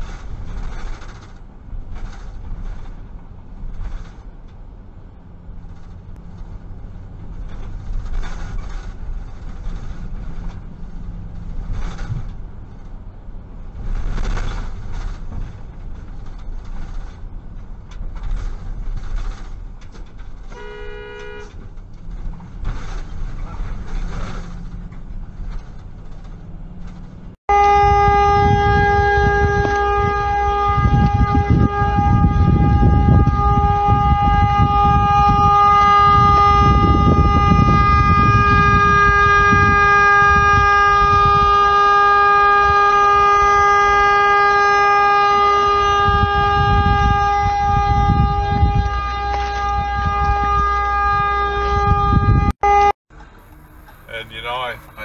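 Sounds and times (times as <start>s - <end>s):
car road rumble: 0.0s - 55.0s
vehicle horn: 20.5s - 21.6s, 27.5s - 53.0s, 53.6s - 55.0s.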